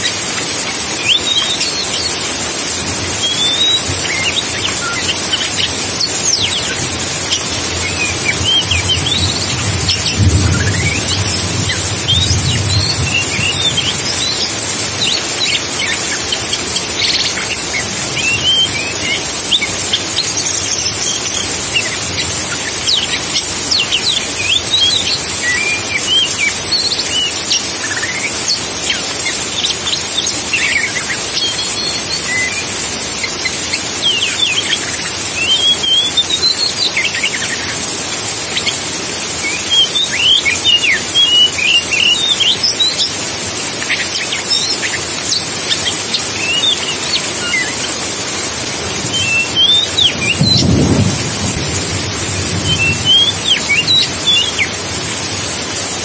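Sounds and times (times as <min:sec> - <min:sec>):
steady high hiss: 0:00.0 - 0:56.0
bird singing whistles: 0:00.6 - 0:02.3, 0:03.0 - 0:37.8, 0:39.4 - 0:43.2, 0:43.8 - 0:48.0, 0:49.0 - 0:51.2, 0:52.5 - 0:54.8.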